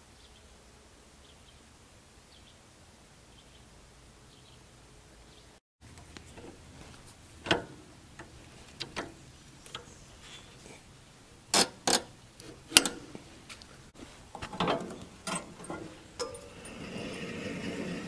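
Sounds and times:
metal clanks and clicks: 5.9 - 9.9, 11.5 - 13.2, 14.2 - 18.0.

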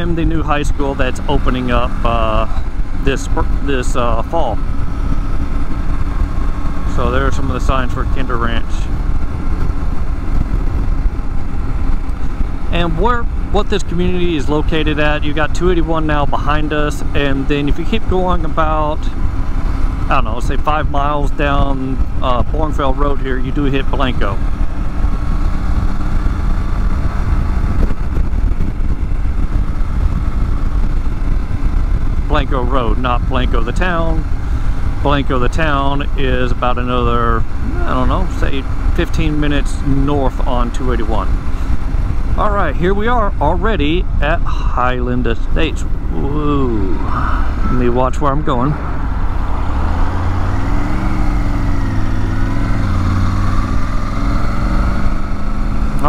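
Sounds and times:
motorcycle engine: 0.0 - 56.0
road noise: 0.0 - 56.0
wind buffeting microphone: 8.9 - 12.7, 24.2 - 38.9.

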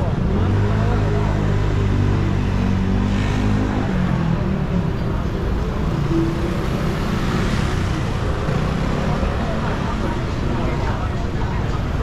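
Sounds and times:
road noise: 0.0 - 12.0
vehicle engine humming: 0.0 - 12.0.

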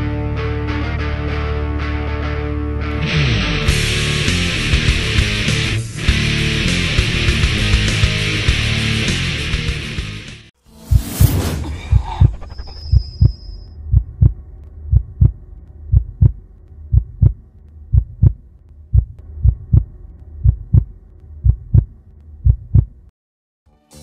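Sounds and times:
low hum: 10.7 - 23.1
heartbeat double thump: 10.8 - 23.0.

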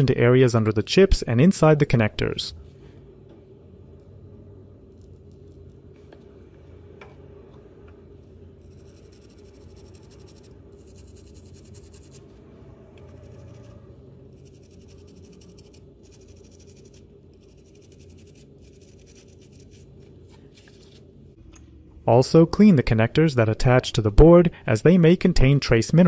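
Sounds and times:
brush scrubbing circuit board: 8.6 - 12.3, 13.0 - 19.9.

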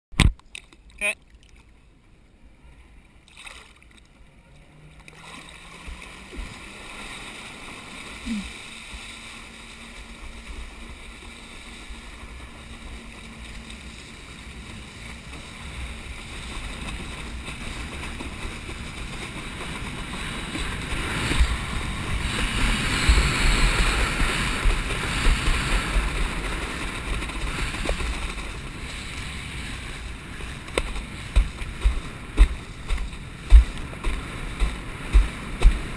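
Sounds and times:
jet ski engine humming: 1.0 - 35.9
water rushing and splashing: 3.1 - 35.9
wind on microphone: 8.2 - 35.9.

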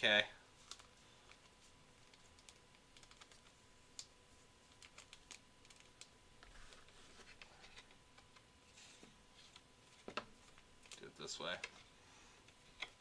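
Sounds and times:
card booklet clicks and crinkles: 4.7 - 6.1.

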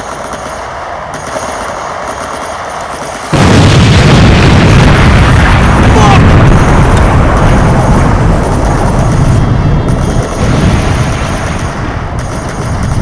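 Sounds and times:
explosion rumble: 3.3 - 13.0.

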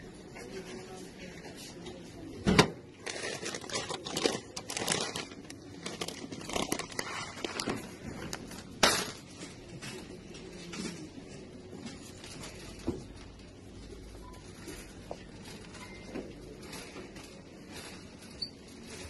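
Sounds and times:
plastic pouches crinkling: 3.0 - 8.8.

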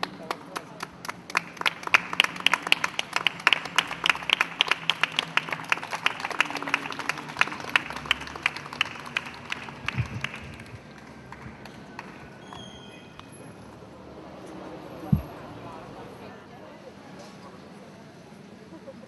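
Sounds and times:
small group clapping: 0.0 - 13.3.

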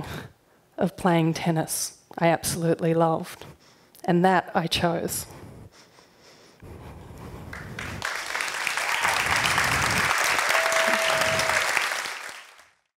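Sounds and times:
audience applauding: 7.5 - 12.9.

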